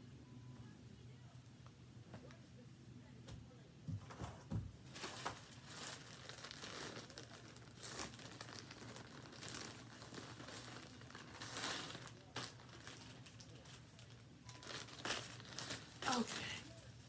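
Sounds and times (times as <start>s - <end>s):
plastic mailer bag crinkling: 4.9s - 17.0s.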